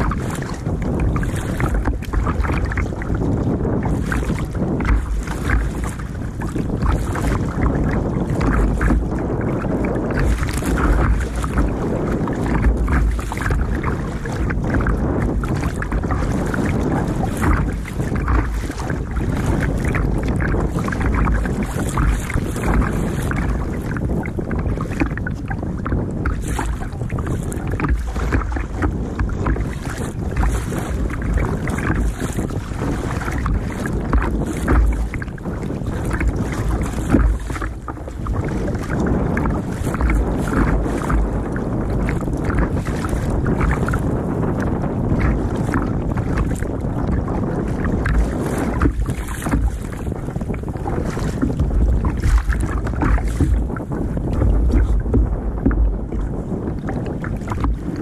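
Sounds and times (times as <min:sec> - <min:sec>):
water splashing against kayak hull: 0:00.0 - 0:58.0
wind buffeting microphone: 0:00.0 - 0:58.0.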